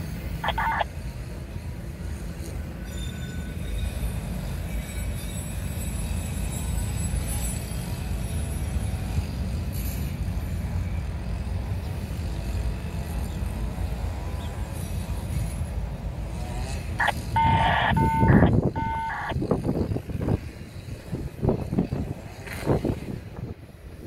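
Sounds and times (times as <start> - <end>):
horn blasts: 17.4 - 19.3.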